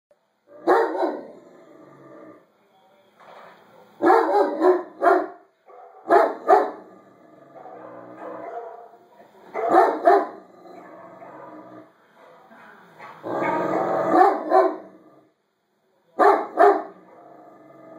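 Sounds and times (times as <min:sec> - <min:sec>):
faint dogs barking from video: 0:00.4 - 0:01.5, 0:02.4 - 0:15.3, 0:16.1 - 0:17.5
dog barking loudly: 0:00.5 - 0:01.4, 0:03.8 - 0:06.9, 0:07.6 - 0:10.4, 0:13.1 - 0:15.0, 0:16.2 - 0:17.1.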